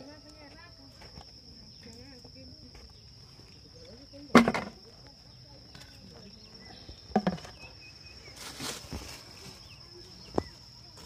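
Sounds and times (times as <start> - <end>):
short rustle: 8.3 - 9.6.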